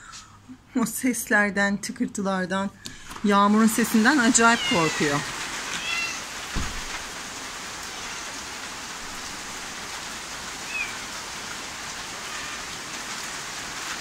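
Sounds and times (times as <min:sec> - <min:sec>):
steady rain falling: 0:02.9 - 0:14.0.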